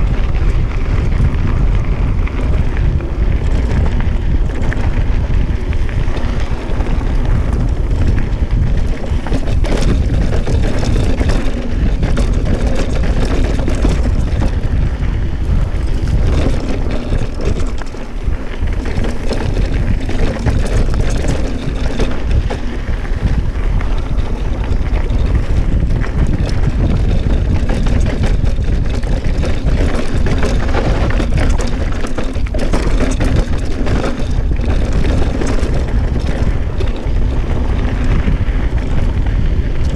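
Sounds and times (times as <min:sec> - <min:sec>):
bike rattles and knocks: 0:00.0 - 0:39.9
wind buffeting microphone: 0:00.0 - 0:39.9.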